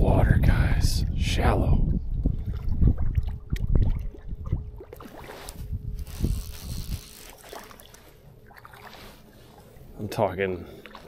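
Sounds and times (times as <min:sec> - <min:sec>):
wind buffeting microphone: 0:00.0 - 0:07.2.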